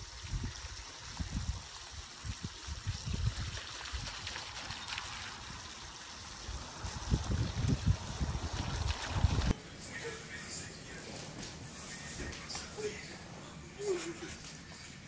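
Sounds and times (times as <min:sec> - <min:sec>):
water splashing from hose: 0:00.0 - 0:09.5.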